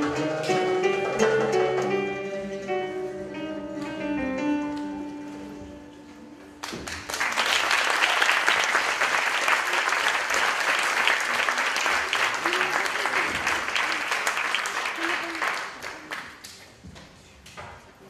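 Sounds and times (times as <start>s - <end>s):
acoustic guitar band playing: 0.0s - 6.4s
audience applause: 6.6s - 16.6s.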